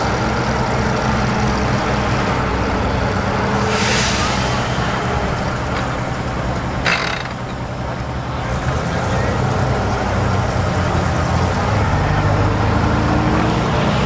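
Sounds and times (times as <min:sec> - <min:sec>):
hiss bursts: 0:03.6 - 0:05.3
off-road vehicle engine running: 0:04.8 - 0:14.0.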